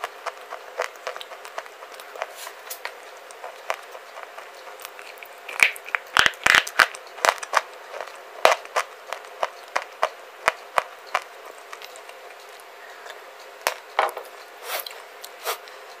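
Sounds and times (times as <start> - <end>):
clay bar crunching when bitten: 0.2 - 12.0.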